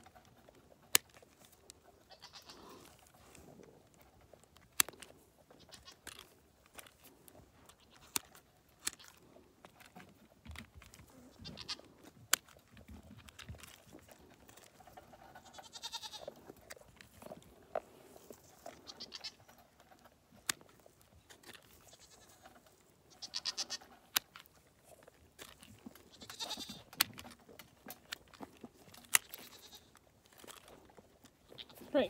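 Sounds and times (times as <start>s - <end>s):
shears snipping hoof: 0.0s - 32.0s
goat bleating: 2.0s - 2.9s, 5.5s - 6.1s, 11.0s - 11.9s, 15.1s - 16.4s, 18.7s - 19.4s, 21.8s - 23.9s, 26.0s - 26.9s, 29.2s - 30.0s, 31.5s - 31.9s.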